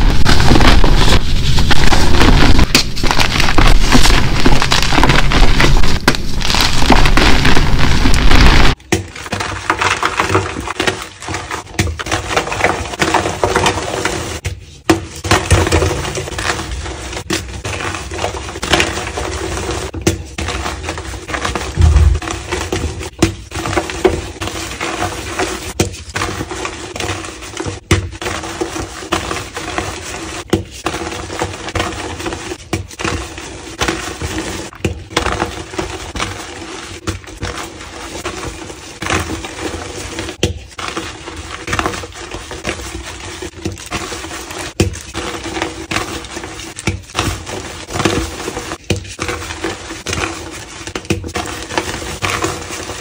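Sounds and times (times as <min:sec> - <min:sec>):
chalk blocks crunching in hands: 0:00.0 - 0:14.2.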